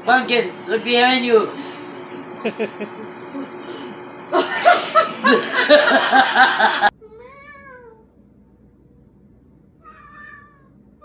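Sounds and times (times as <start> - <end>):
loud laughter: 2.4 - 3.2, 4.4 - 6.9
cat meowing: 7.0 - 8.0, 9.8 - 10.7.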